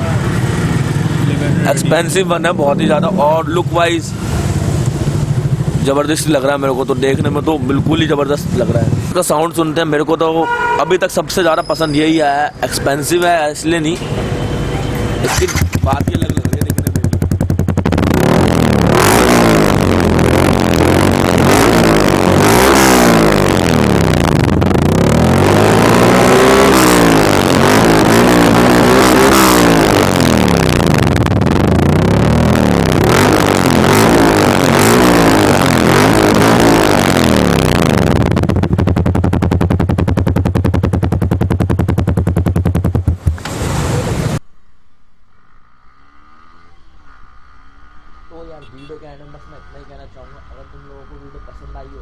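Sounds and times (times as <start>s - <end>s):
motorcycle engine revving: 0.0s - 10.0s, 13.0s - 44.4s, 45.3s - 52.0s
motorcycle engine idling: 4.6s - 8.9s, 15.0s - 25.8s, 29.7s - 33.8s, 37.2s - 43.4s.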